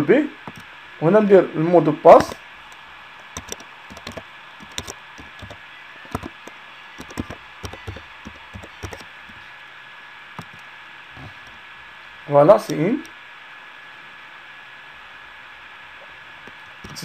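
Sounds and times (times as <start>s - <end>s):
keyboard key clicks: 0.5s - 0.7s, 3.4s - 9.1s.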